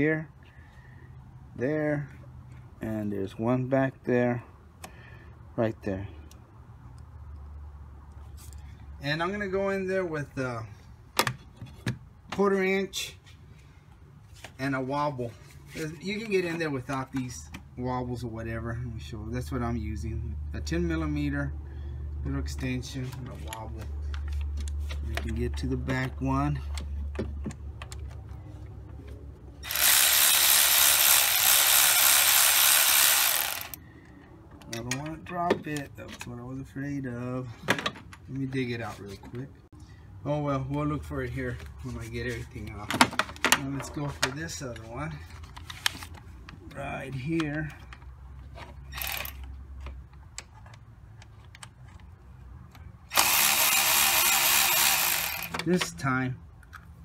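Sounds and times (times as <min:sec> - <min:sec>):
cordless ratchet running: 0:29.6 - 0:33.8, 0:48.9 - 0:49.4, 0:53.1 - 0:55.7
faint ratchet clicks: 0:52.7 - 0:55.6.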